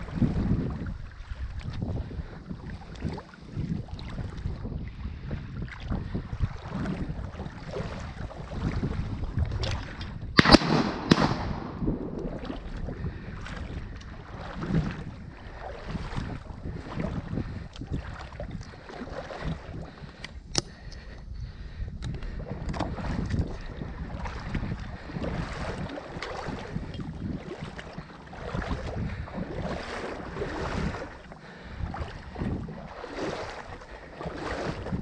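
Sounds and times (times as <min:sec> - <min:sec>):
water rushing at boat bow: 0:00.0 - 0:35.0
wind buffeting microphone: 0:00.0 - 0:35.0
sharp bang: 0:10.4 - 0:11.9
sharp click: 0:20.5 - 0:20.7.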